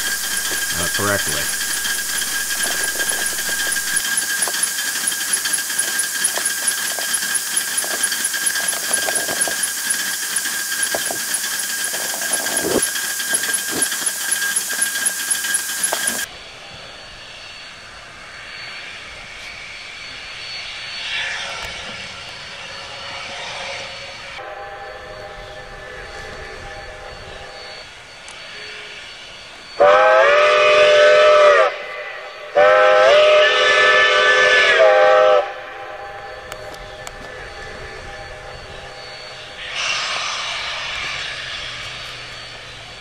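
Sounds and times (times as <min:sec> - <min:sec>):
fast regular ticking: 0:00.0 - 0:16.3
hiss of exhausting air: 0:00.0 - 0:16.3, 0:39.6 - 0:42.8
steady whine: 0:00.0 - 0:43.0.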